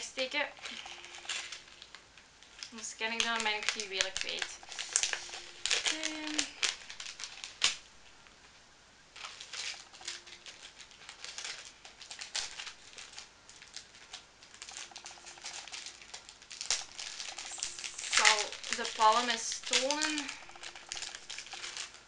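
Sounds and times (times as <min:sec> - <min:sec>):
plastic packet crinkling: 0:00.6 - 0:07.9, 0:09.2 - 0:22.0.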